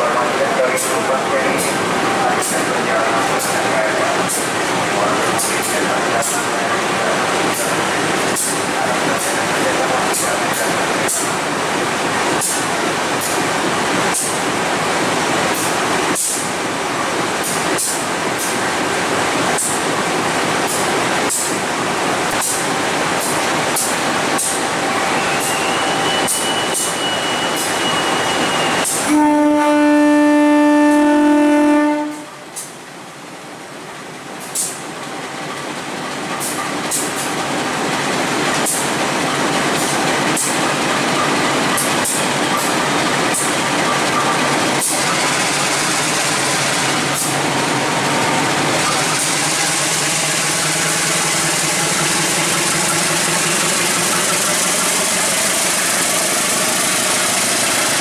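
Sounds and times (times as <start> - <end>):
locomotive engine running: 0.0 - 32.8, 34.0 - 58.0
wheels clicking on rail: 22.3 - 28.0, 34.4 - 58.0
locomotive horn: 25.1 - 32.4.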